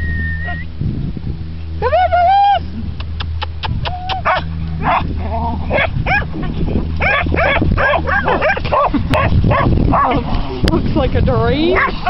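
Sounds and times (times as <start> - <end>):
steady low hum: 0.0 - 12.0
dog barking: 4.2 - 5.1, 5.7 - 6.3, 7.0 - 10.2, 11.7 - 12.0.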